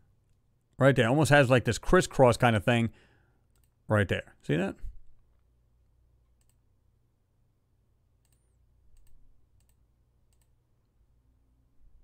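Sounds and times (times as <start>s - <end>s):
faint computer clicks: 3.5s - 3.8s, 6.3s - 6.6s, 8.2s - 10.6s.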